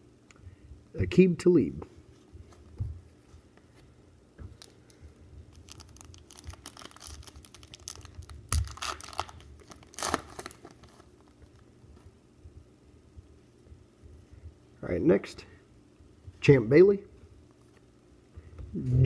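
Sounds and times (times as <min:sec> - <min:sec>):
wrapper tearing and crinkling: 0:05.5 - 0:11.2.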